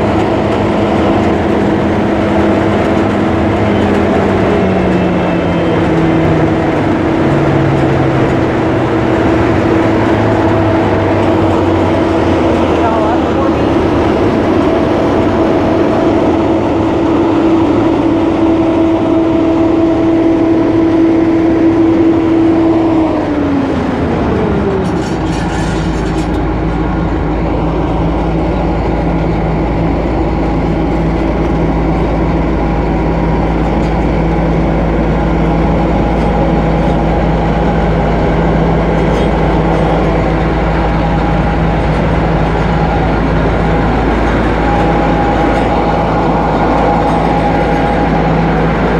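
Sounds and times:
combine harvester engine humming with whine: 0:00.0 - 0:48.9.

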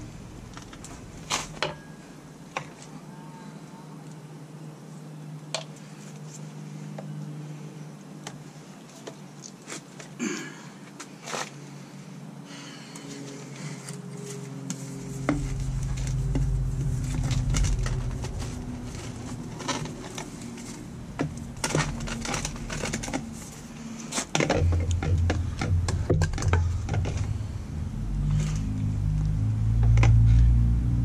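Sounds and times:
low rumble: 0:14.8 - 0:31.0
plastic pipe clicking and rustling: 0:15.2 - 0:27.4, 0:29.8 - 0:30.3.

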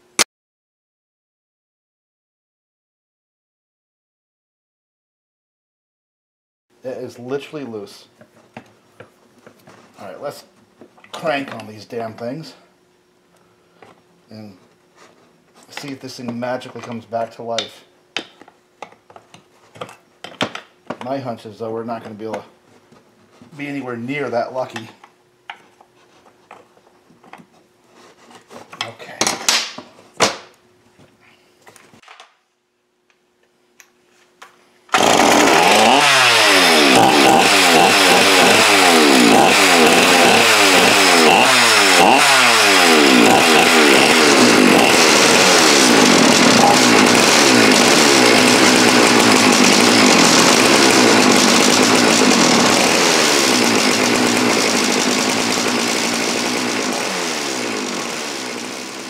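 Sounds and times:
chainsaw engine running: 0:34.9 - 0:59.0.

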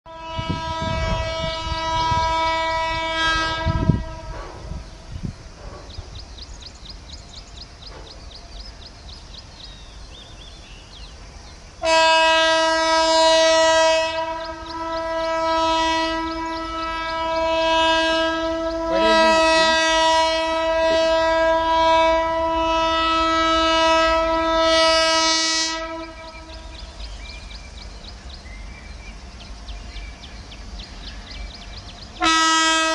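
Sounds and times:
locomotive horn blast: 0:00.1 - 0:04.8, 0:11.8 - 0:26.9, 0:32.2 - 0:32.9.

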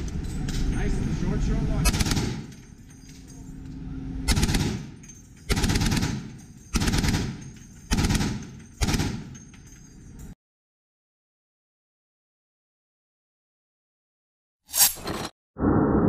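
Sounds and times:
heavy machine gun bursts: 0:01.9 - 0:02.5, 0:04.3 - 0:09.4.

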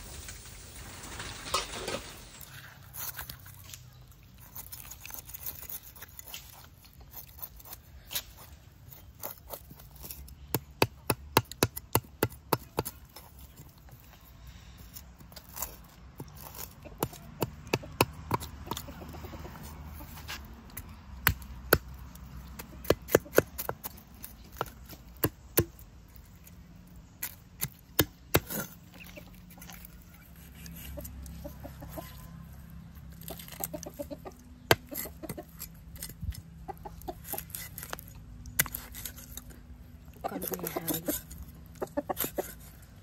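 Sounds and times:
chickens clucking: 0:16.2 - 0:25.5, 0:28.0 - 0:38.0, 0:40.2 - 0:43.0.

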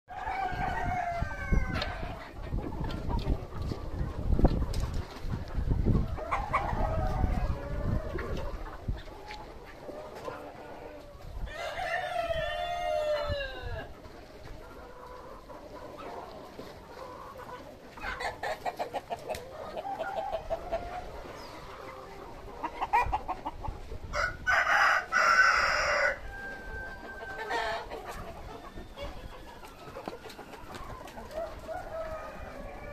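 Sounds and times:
harsh chicken call: 0:00.1 - 0:02.3, 0:24.1 - 0:32.9
chickens clucking: 0:00.1 - 0:32.9
rooster crowing: 0:24.2 - 0:27.8.

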